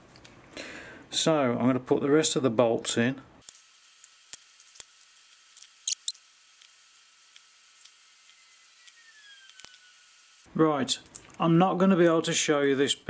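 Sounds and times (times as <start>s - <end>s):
short high squeaks: 5.7s - 6.2s.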